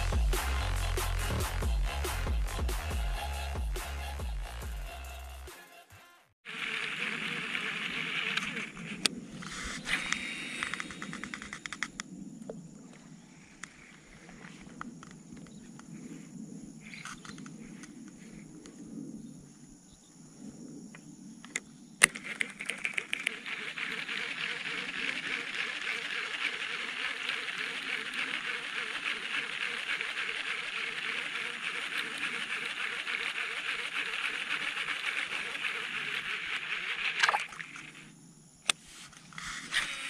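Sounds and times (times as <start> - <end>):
fishing reel whirring: 6.6 - 12.0, 22.0 - 38.1, 39.4 - 40.0.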